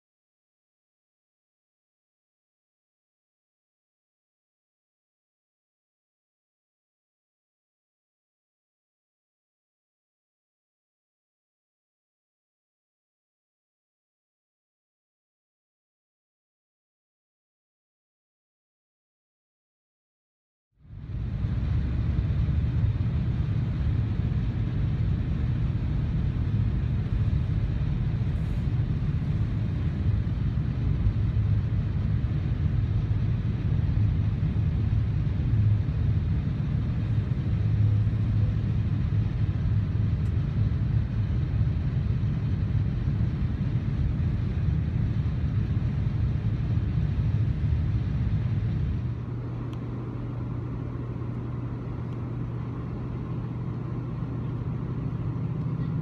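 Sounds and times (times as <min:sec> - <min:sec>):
steady low hum: 0:20.8 - 0:56.0
passenger train running noise: 0:20.9 - 0:56.0.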